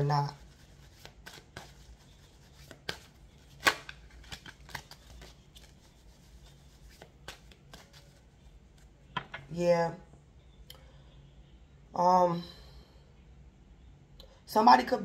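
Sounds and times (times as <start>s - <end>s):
cards clicking and rustling: 0.5s - 9.4s.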